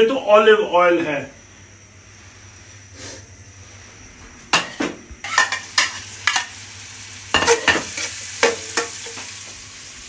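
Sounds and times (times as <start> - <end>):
onions sizzling in oil: 4.5 - 10.0.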